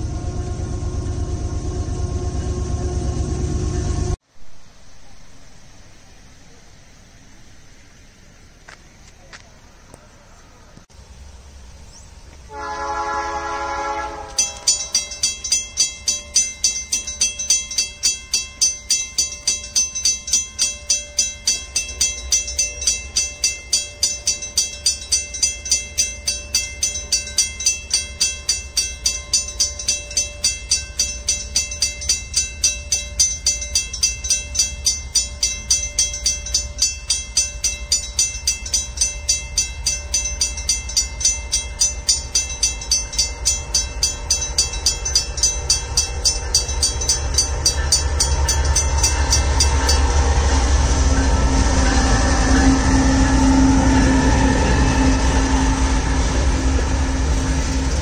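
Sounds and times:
distant locomotive horn: 0:00.0 - 0:04.2, 0:12.4 - 0:15.3, 0:48.1 - 0:58.0
train rumbling: 0:00.0 - 0:04.8, 0:07.4 - 0:58.0.

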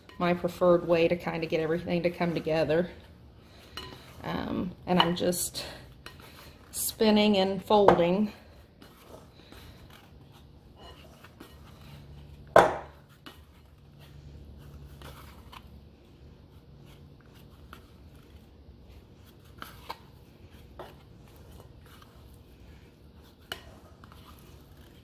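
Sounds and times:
dough scraper scraping in bowl: 0:23.3 - 0:25.0.

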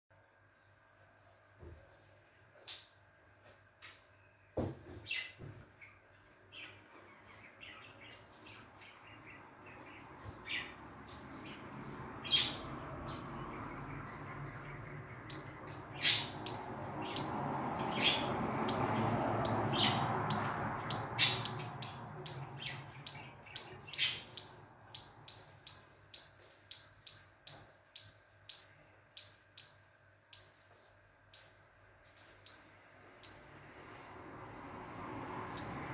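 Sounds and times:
frogs chirping: 0:14.6 - 0:15.6, 0:16.2 - 0:30.5.

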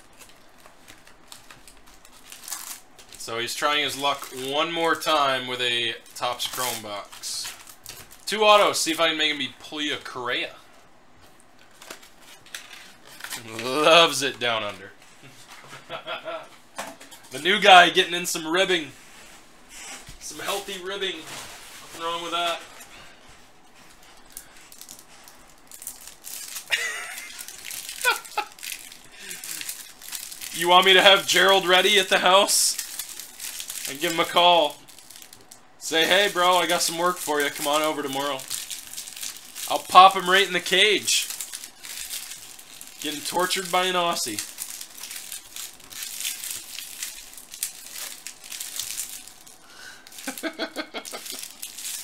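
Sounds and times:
foil packs rustling and crinkling: 0:00.0 - 0:16.1, 0:20.0 - 0:52.0.

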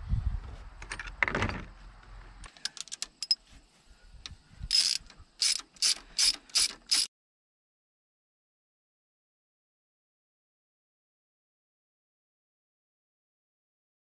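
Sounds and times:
socket ratchet clicking: 0:04.7 - 0:07.1.

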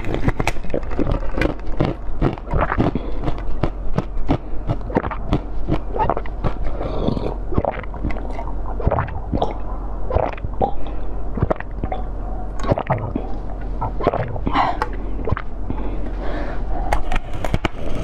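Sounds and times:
wet sucking and slurping: 0:04.8 - 0:10.8, 0:12.6 - 0:14.5.

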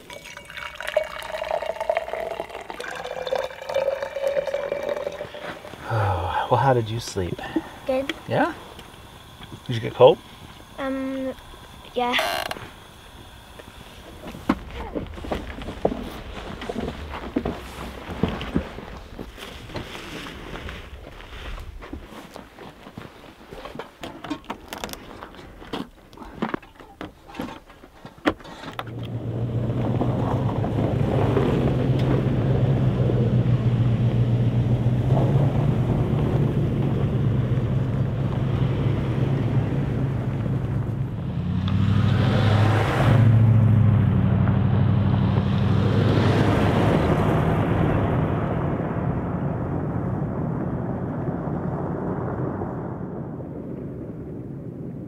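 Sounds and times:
vehicle engine running: 0:00.8 - 0:20.8, 0:28.8 - 0:49.7.

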